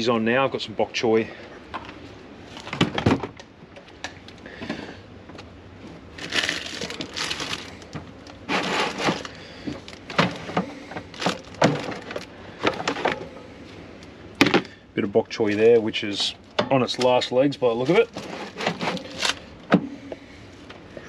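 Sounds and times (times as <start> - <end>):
vegetable crunching and crackling: 6.2 - 10.0.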